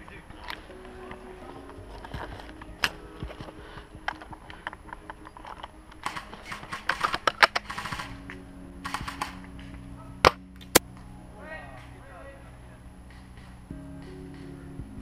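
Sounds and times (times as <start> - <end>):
quiet background music: 0.0 - 15.0
rifle clicks: 4.1 - 9.4.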